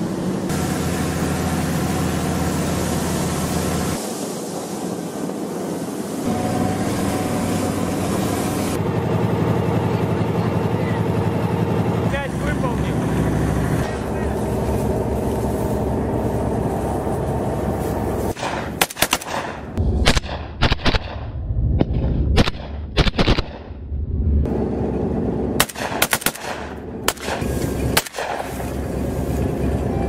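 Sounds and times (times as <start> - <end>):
steady low rumble: 0.1 - 30.0
rifles firing bursts: 18.4 - 21.1, 25.6 - 28.5.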